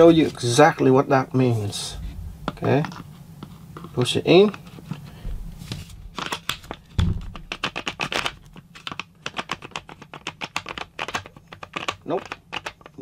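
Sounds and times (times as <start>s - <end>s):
metal clicking and knocking on plastic: 6.2s - 13.0s
heavy knock: 6.9s - 7.6s.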